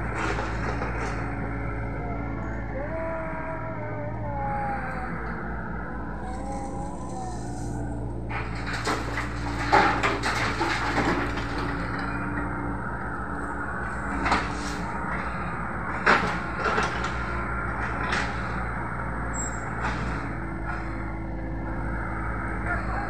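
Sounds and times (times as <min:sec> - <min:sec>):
excavator bucket clanking: 0:00.0 - 0:01.6, 0:08.3 - 0:12.5
diesel engine running: 0:00.0 - 0:23.0.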